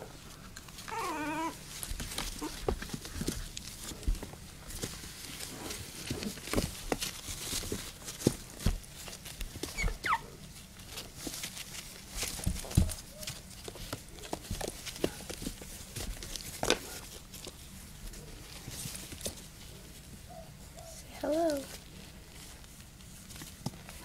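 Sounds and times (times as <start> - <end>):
puppies scrabbling on a pad: 0.0 - 24.0
puppy squeak: 0.9 - 1.6, 9.7 - 10.2.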